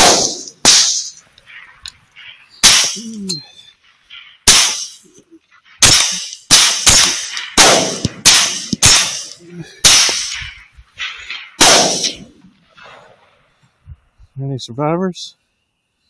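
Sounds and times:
rapid rifle fire: 0.0s - 1.1s, 4.5s - 5.0s, 5.8s - 12.3s.

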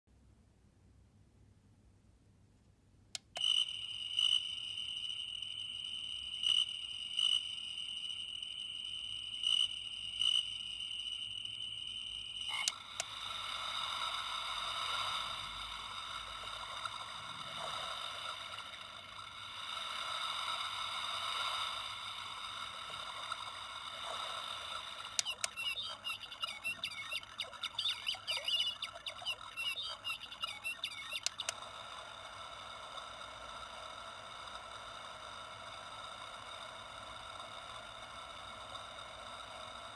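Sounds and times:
chorus of frogs and insects: 3.4s - 34.6s
high-pitched electronic tone: 9.3s - 13.0s, 24.0s - 31.6s.

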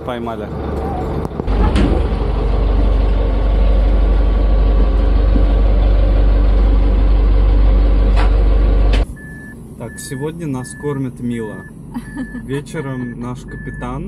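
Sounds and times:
boat engine running: 0.0s - 9.0s.

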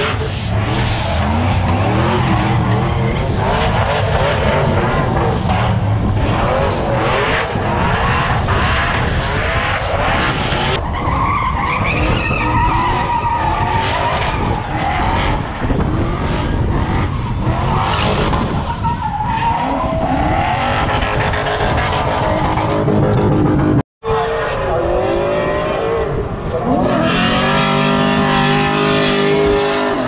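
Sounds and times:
engine at high revs: 0.0s - 10.8s, 13.7s - 18.6s, 24.8s - 30.0s.

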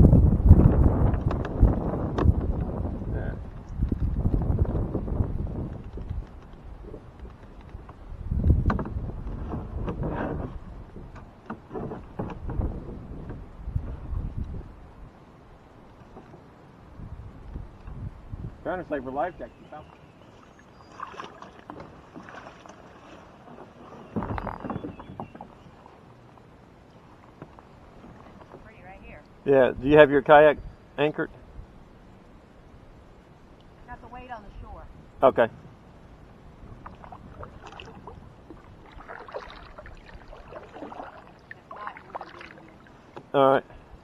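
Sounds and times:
kayak hull scraping on dirt: 8.5s - 14.3s, 19.6s - 26.0s, 36.7s - 43.5s
paddle splashes and drips: 19.6s - 28.7s, 36.6s - 43.9s.

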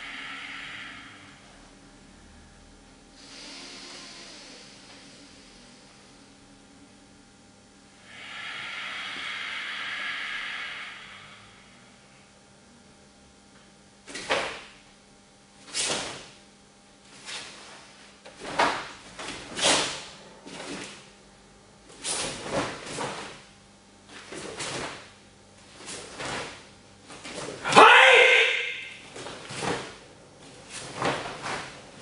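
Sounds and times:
swishes and snaps of cloth: 14.1s - 14.8s, 15.7s - 16.4s, 17.2s - 21.0s.

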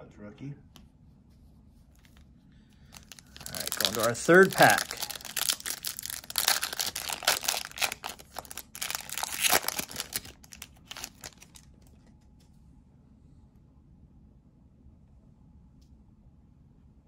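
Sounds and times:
foil wrapper tearing and crinkling: 2.9s - 11.8s.

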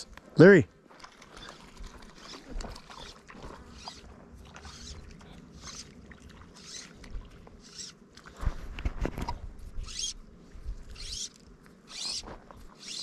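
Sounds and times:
fly line zipping through guides: 1.4s - 8.0s, 9.1s - 10.2s, 10.9s - 13.0s.

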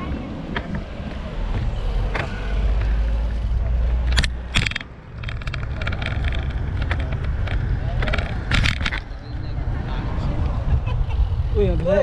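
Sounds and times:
wind buffeting microphone: 0.0s - 12.0s
bicycle clicks and knocks: 1.5s - 9.1s.

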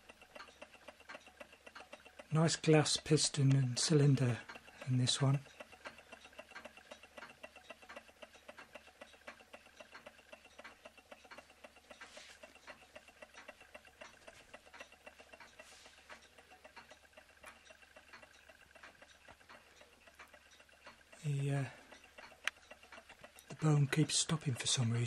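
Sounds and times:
small engine ticking: 0.0s - 25.0s.

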